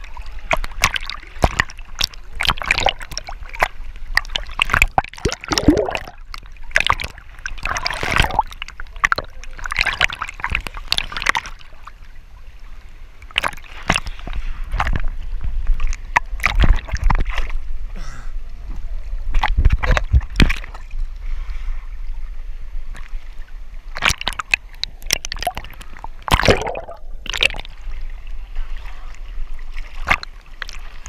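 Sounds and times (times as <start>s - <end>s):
water splashing against camera: 0.0s - 11.9s, 13.2s - 17.7s, 18.8s - 20.9s, 23.9s - 31.0s
water gurgling: 0.0s - 12.2s, 23.8s - 31.0s.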